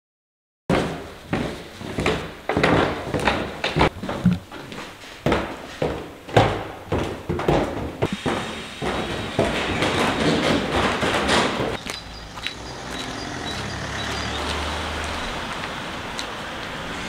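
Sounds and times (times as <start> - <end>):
footsteps going down stairs: 0.7 - 16.8
street ambience: 0.8 - 17.0
vehicle engine running: 12.0 - 17.0.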